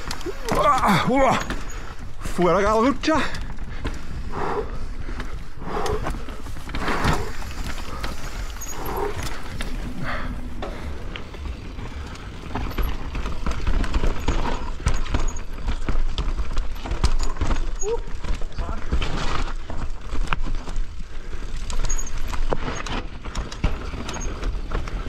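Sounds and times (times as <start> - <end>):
bike chain and frame clattering: 0.0 - 25.0
tyres rumbling over dirt: 0.0 - 25.0.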